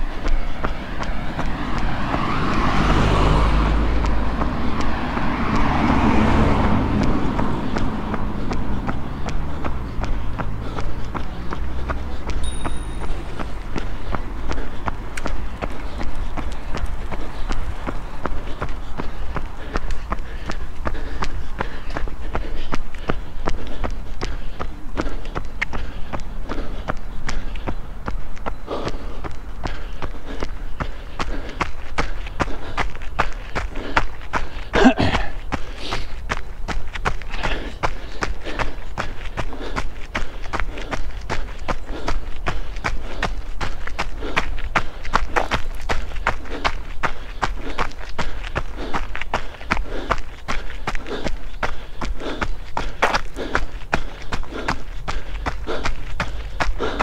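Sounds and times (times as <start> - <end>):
runner's footfalls: 0.0 - 57.0
motor vehicle driving past: 0.1 - 19.6.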